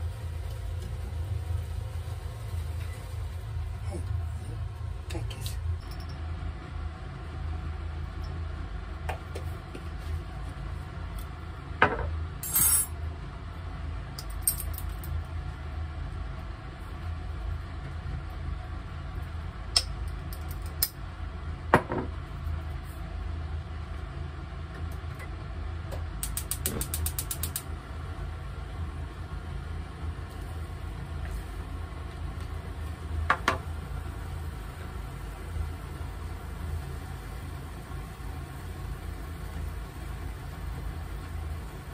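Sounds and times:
steady low hum: 0.0 - 41.9
gas hob igniter ticking: 26.2 - 27.7.

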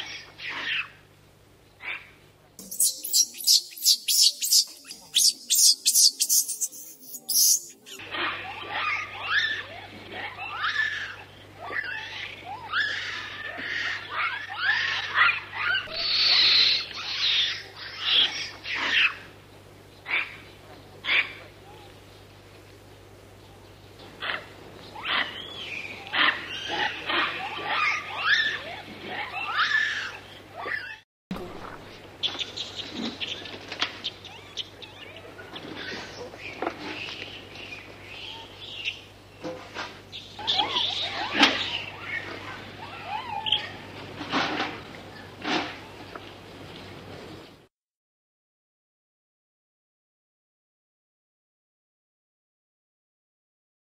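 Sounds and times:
high chirping calls: 2.6 - 8.0
monkey screaming: 2.6 - 9.7, 10.3 - 19.2, 26.2 - 31.0, 40.4 - 43.9
monkeys squealing and chirping: 2.6 - 9.7, 10.4 - 19.2, 26.2 - 31.0, 40.4 - 43.9.

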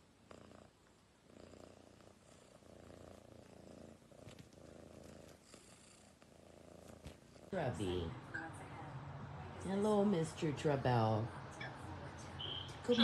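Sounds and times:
cat purring softly: 0.0 - 8.2.

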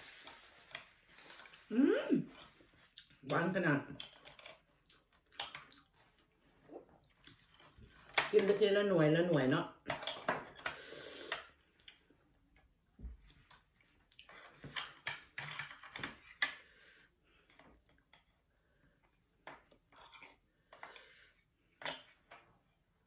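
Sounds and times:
wet chewing and mouth sounds: 4.7 - 8.0.

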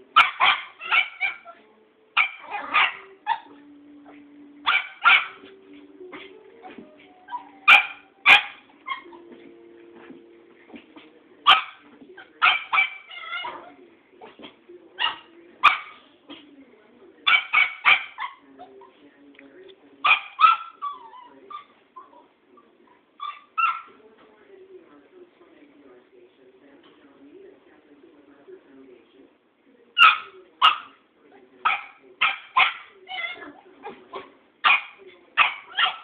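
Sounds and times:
puppy barking and yipping: 0.2 - 1.6, 2.2 - 3.6, 4.6 - 5.5, 7.3 - 9.2, 12.4 - 13.7, 17.3 - 18.4, 20.1 - 21.7, 23.2 - 23.9, 30.0 - 30.9, 31.7 - 36.0.

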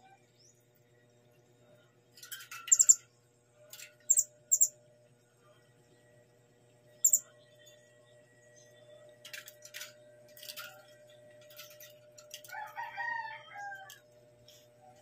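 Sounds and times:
parrot chirping: 2.7 - 3.0, 4.1 - 4.7.

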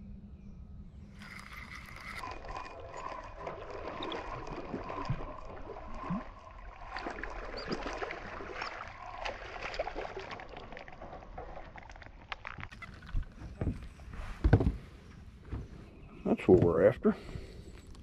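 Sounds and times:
fish splashing at water surface: 1.3 - 12.8.

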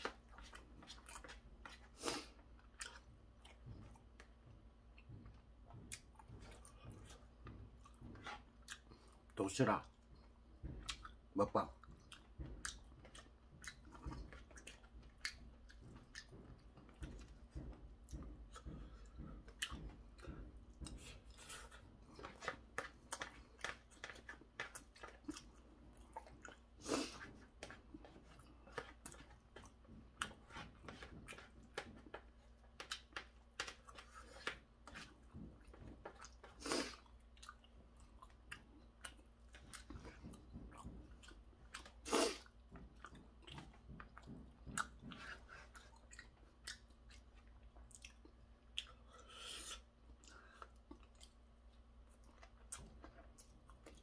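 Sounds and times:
person chewing and crunching: 0.0 - 54.0.

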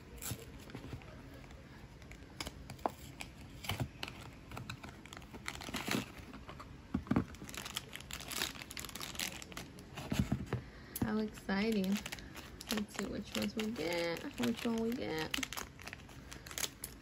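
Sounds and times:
plastic bag crinkling: 4.8 - 6.5, 7.1 - 10.2, 11.2 - 17.0.

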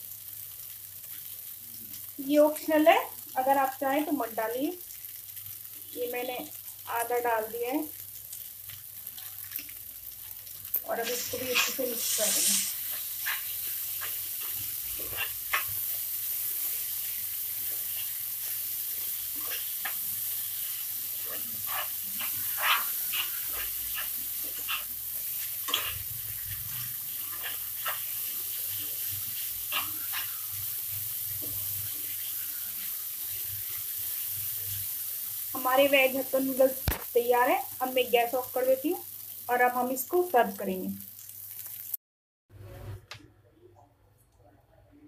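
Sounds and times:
noodles sizzling in a pan: 0.0 - 42.0
spatula scraping and tapping pan: 11.0 - 16.1, 17.6 - 30.5.

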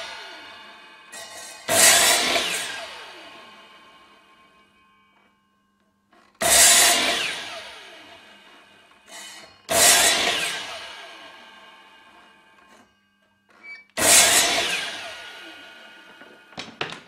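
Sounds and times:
mitre saw cutting wood: 0.0 - 4.4, 6.4 - 8.4, 9.0 - 12.9, 14.0 - 16.8.

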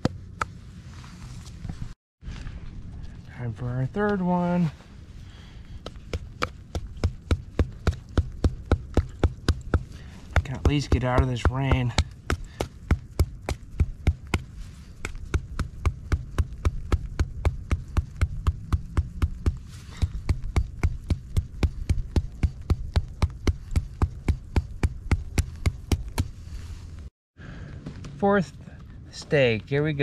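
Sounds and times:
hammer striking tent stake: 5.9 - 26.3.

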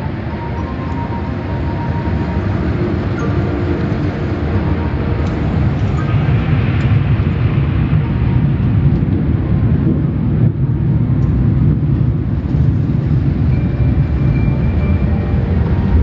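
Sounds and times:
car wash machinery rumbling: 0.0 - 16.0.

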